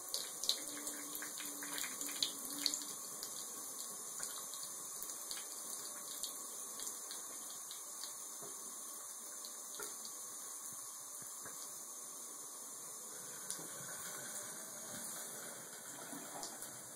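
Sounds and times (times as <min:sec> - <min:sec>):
water trickling from tap: 0:00.0 - 0:10.2, 0:15.1 - 0:16.8.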